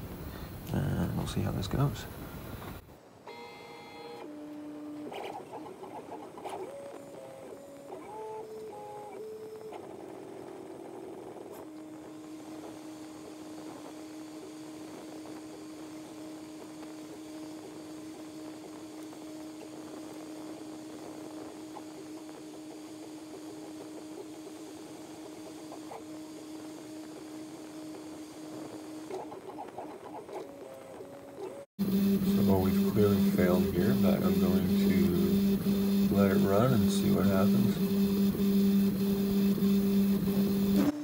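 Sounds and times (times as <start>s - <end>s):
stepper motors whining: 0.0s - 41.0s.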